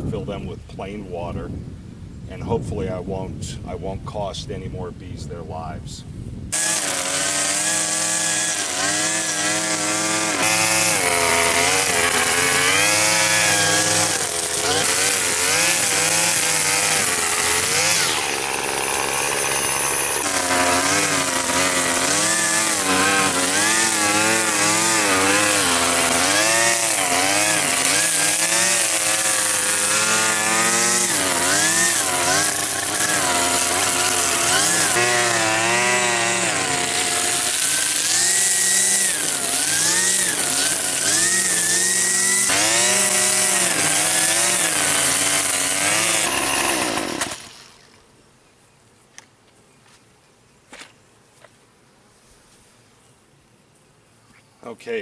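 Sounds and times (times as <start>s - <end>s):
string trimmer cutting grass: 6.5s - 48.0s.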